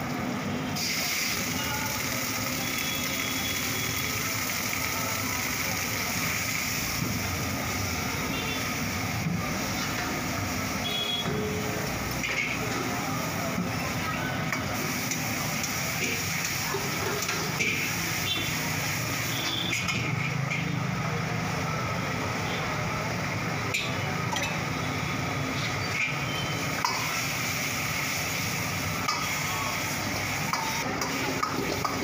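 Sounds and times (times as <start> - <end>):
sauce sizzling: 0.8 - 19.9, 25.8 - 32.0.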